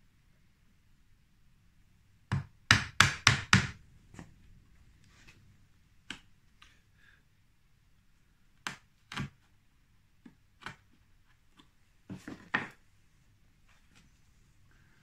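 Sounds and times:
chisel clicks on wood: 0:08.6 - 0:09.4.

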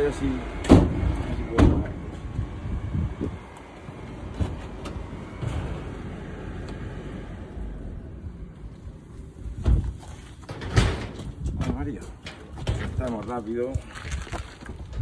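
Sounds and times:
low outdoor rumble: 0:00.0 - 0:15.0
loud thump: 0:00.6 - 0:02.0, 0:09.6 - 0:11.8.

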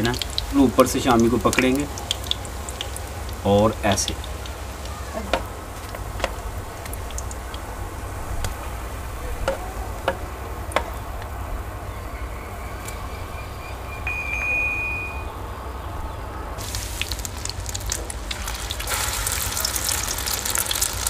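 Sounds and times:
food frying in oil: 0:00.0 - 0:11.0, 0:16.6 - 0:21.0
thin high tone: 0:12.9 - 0:15.8.

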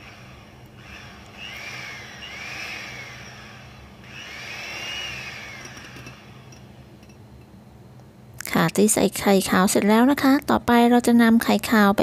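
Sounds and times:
electric hand mixer whining: 0:00.0 - 0:06.7.

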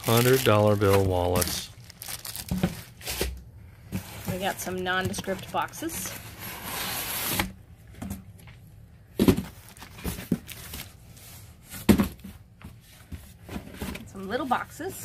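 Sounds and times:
cardboard boxes rustling and scraping: 0:02.7 - 0:08.2, 0:09.2 - 0:15.0
boxes knocking when set down: 0:09.1 - 0:10.5, 0:11.8 - 0:12.4.

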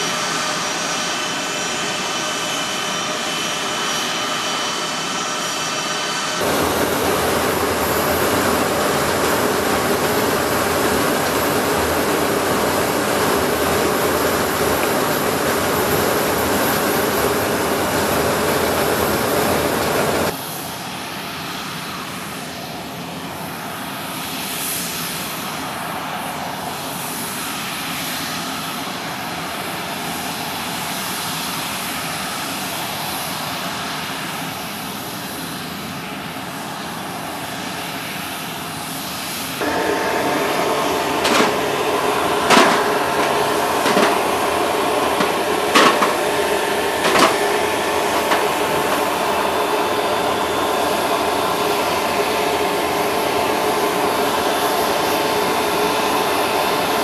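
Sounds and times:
loud steady hum: 0:00.0 - 0:20.4, 0:39.5 - 0:57.0
aircraft engine noise: 0:00.0 - 0:57.0.

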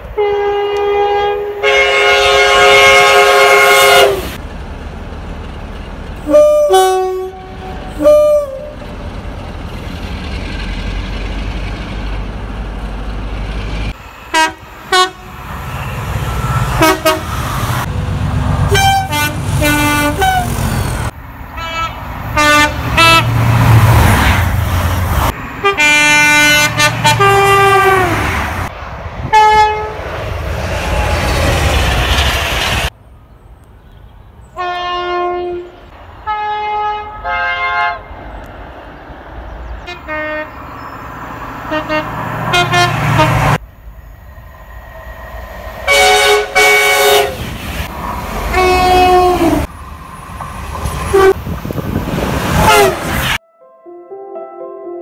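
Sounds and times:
diesel locomotive passing: 0:00.0 - 0:53.4
two-tone train horn blasts: 0:00.2 - 0:04.4, 0:06.2 - 0:08.8, 0:14.3 - 0:15.8, 0:16.4 - 0:17.4, 0:18.6 - 0:20.6, 0:21.6 - 0:23.4, 0:25.6 - 0:28.4, 0:29.3 - 0:30.0, 0:34.6 - 0:38.1, 0:39.9 - 0:40.6, 0:41.6 - 0:43.6, 0:45.9 - 0:47.4, 0:48.5 - 0:49.7, 0:51.1 - 0:51.4, 0:52.6 - 0:53.6.

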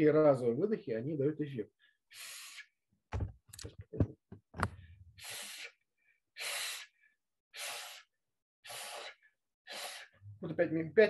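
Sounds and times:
knocks and thumps: 0:03.1 - 0:04.8
man blowing forceful breaths: 0:04.8 - 0:10.2.

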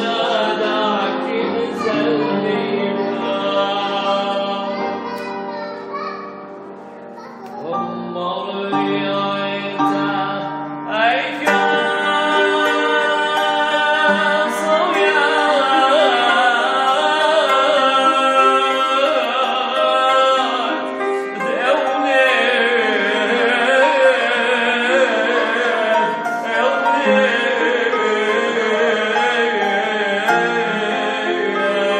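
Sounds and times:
man singing a hymn: 0:00.0 - 0:05.3, 0:07.6 - 0:31.9
instrumental accompaniment: 0:00.0 - 0:31.9.

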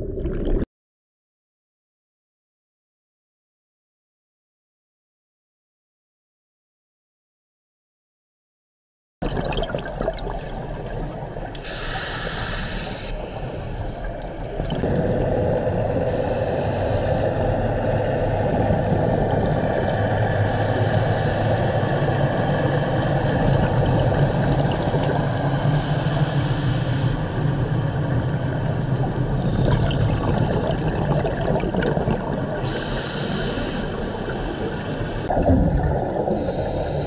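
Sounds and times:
regulator bubbles underwater: 0:09.2 - 0:37.0
low boat engine drone: 0:10.5 - 0:30.0, 0:32.0 - 0:37.0.

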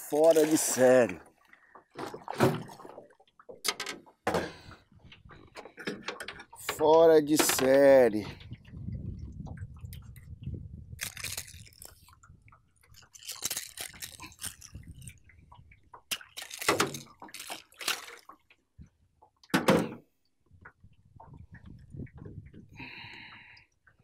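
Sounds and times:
fish thrashing water: 0:00.0 - 0:03.6, 0:11.0 - 0:18.6.

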